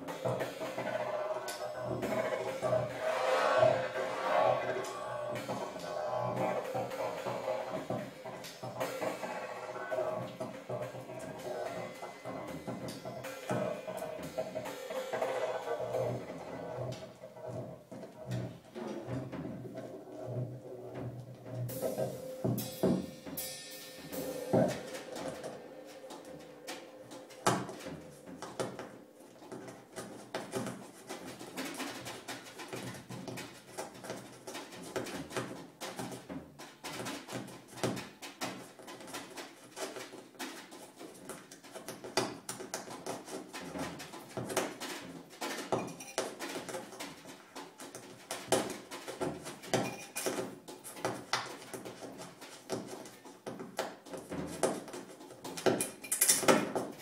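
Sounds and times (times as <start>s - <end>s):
drum kit improvised playing: 0.0s - 36.6s.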